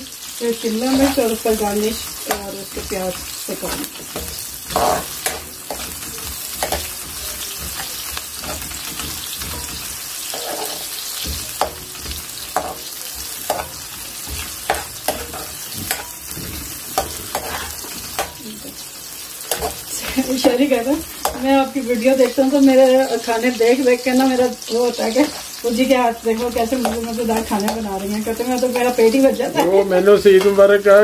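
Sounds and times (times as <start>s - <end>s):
onions sizzling in oil: 0.0s - 31.0s
metal ladle scraping pan: 0.9s - 18.5s, 19.4s - 22.5s, 25.0s - 29.8s.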